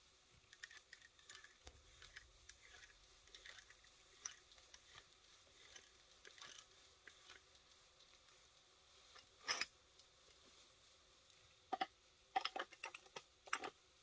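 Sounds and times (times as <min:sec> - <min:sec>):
metal tool parts clinking: 0:00.5 - 0:05.0.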